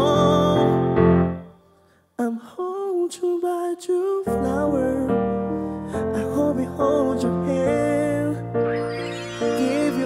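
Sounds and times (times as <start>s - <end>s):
man singing into microphone: 0.0s - 1.0s, 2.2s - 8.8s, 9.4s - 10.0s
background music: 5.5s - 10.0s
instrumental accompaniment: 8.5s - 10.0s.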